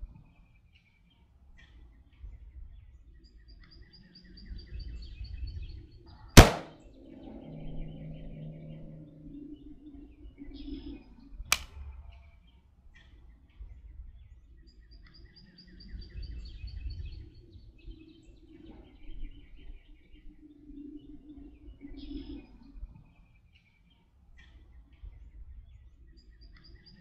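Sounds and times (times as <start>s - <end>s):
sharp crack: 6.4s - 6.8s
low wind rumble: 6.7s - 11.2s.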